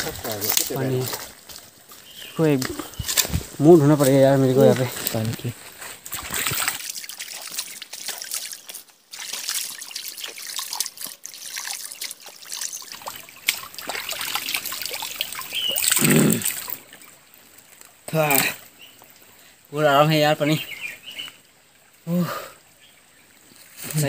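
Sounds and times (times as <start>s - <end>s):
hands scooping water: 0.0s - 18.6s
small water splashes: 0.0s - 23.8s
stream trickling over stones: 0.0s - 24.0s.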